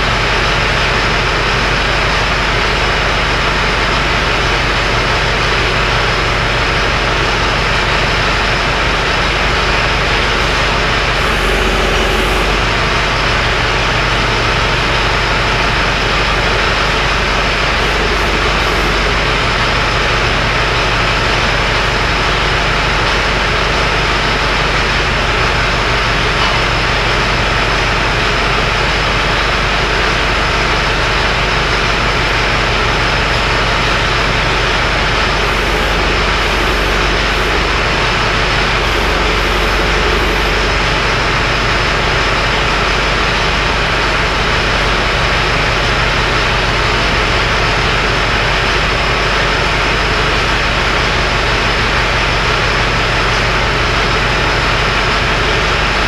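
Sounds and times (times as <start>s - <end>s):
machine running: 0.0s - 56.0s
low hum: 4.8s - 45.0s.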